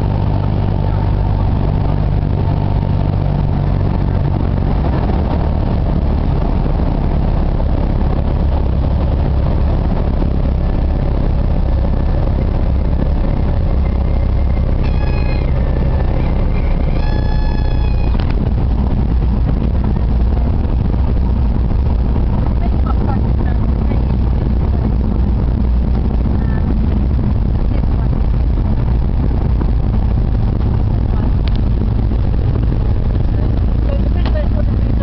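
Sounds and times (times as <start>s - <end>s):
propeller plane engine: 0.0s - 35.0s
stall warning horn tone: 14.1s - 18.6s.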